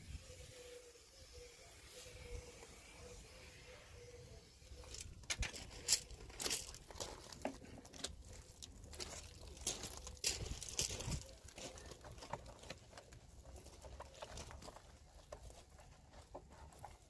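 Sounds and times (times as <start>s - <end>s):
footsteps on gravel: 4.8s - 17.0s.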